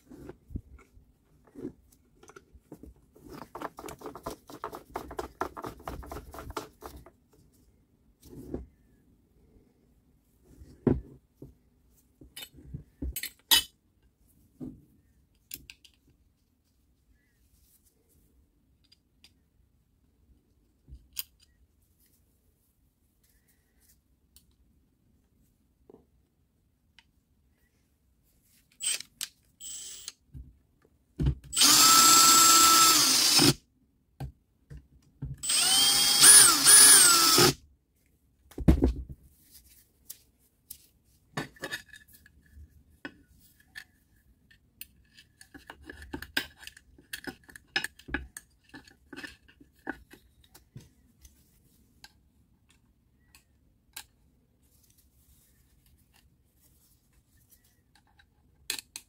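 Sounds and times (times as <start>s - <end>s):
cordless power tool motor: 31.5s - 33.6s, 35.4s - 37.6s.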